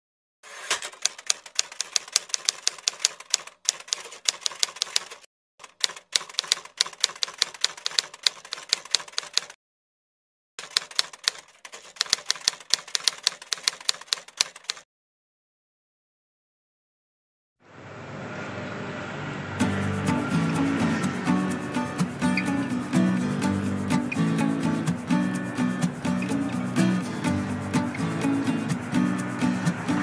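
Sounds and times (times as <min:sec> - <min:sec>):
typewriter keystroke clicks: 0:00.7 - 0:09.6, 0:10.6 - 0:14.8.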